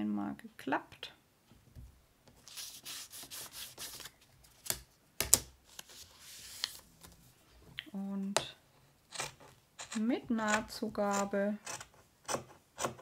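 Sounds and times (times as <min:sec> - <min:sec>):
paper rubbing: 0:02.4 - 0:04.2, 0:05.7 - 0:06.8.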